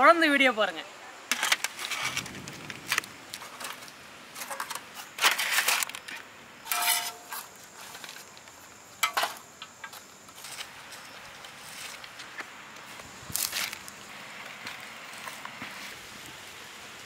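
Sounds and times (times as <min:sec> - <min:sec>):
short metallic rings: 0:06.6 - 0:07.4
ladle scraping metal pan: 0:06.7 - 0:07.5.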